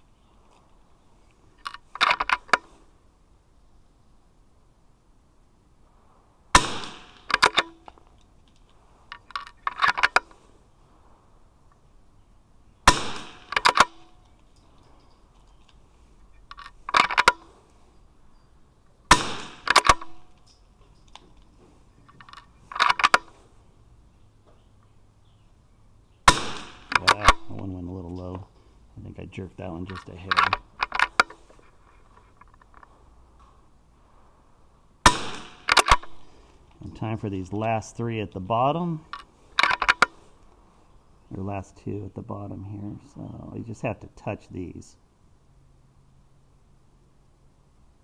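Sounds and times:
rifle shots: 0:06.5 - 0:07.7, 0:12.8 - 0:14.1, 0:19.1 - 0:20.3, 0:26.3 - 0:27.5, 0:35.0 - 0:36.2
rifle bolt clicks: 0:07.1 - 0:10.3, 0:12.9 - 0:14.6, 0:19.2 - 0:21.3, 0:22.1 - 0:23.3, 0:26.3 - 0:27.6, 0:35.1 - 0:36.2, 0:39.1 - 0:40.2.

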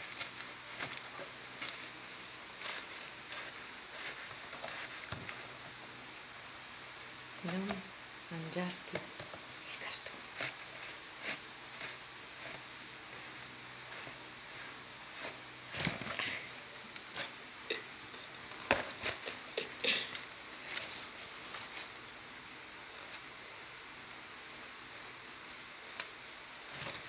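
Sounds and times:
cardboard box rustling and scraping: 0:00.0 - 0:05.6.

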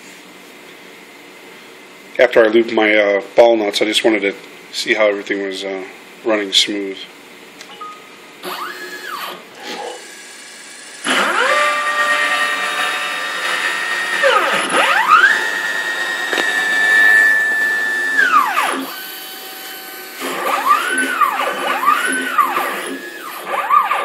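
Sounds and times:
stepper motors whining: 0:08.4 - 0:24.0.

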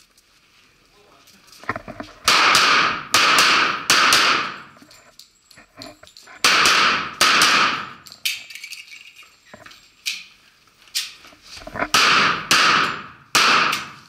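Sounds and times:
pistol shots echoing indoors: 0:02.3 - 0:04.7, 0:06.4 - 0:08.1, 0:11.9 - 0:14.0.

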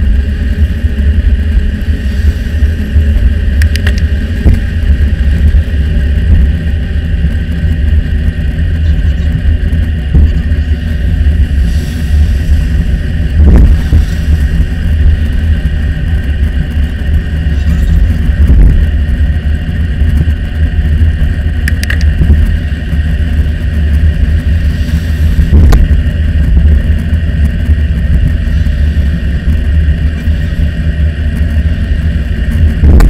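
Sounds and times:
wind and road rumble: 0:00.0 - 0:33.0.

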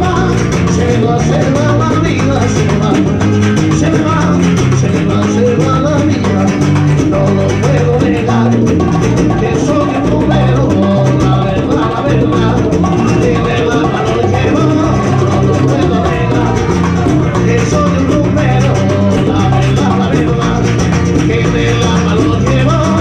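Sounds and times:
conga drums: 0:00.0 - 0:23.0
electric bass: 0:00.0 - 0:23.0
strummed nylon-string guitar: 0:00.0 - 0:23.0.

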